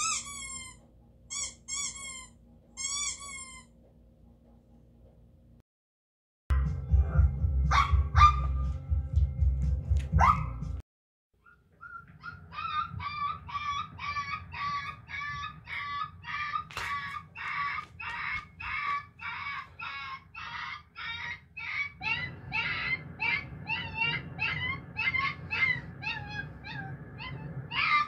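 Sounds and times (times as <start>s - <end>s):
small dog yipping: 0.0s - 3.7s, 11.4s - 28.0s
puppy whimpering: 11.4s - 28.0s
low rumble: 22.0s - 28.0s.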